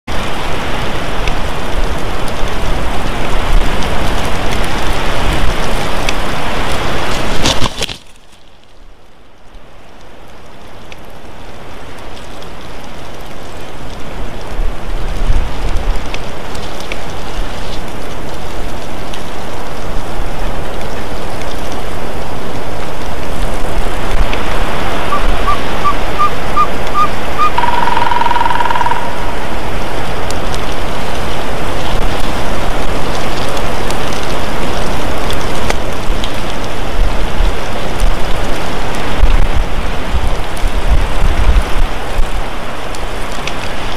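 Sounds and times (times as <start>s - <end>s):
loud steady rushing noise: 11.2s - 43.9s
bird calling short high notes: 25.1s - 29.3s.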